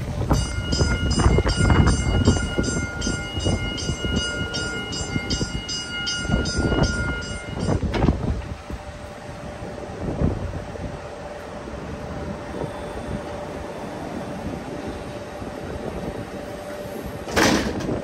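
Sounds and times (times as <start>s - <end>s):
gusty low rumble: 0.0s - 18.0s
crosswalk warning signal chime: 0.2s - 8.1s, 12.2s - 15.4s.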